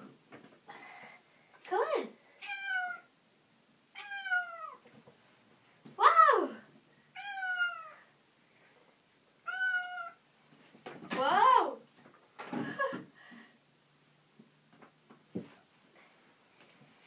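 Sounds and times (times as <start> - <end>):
cat meowing: 2.4 - 3.1, 3.9 - 4.8, 7.2 - 8.1, 9.4 - 10.2.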